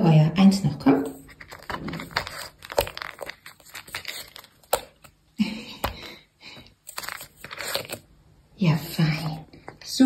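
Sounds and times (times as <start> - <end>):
cat scraping in treat tub: 1.0 - 5.0, 6.9 - 8.1.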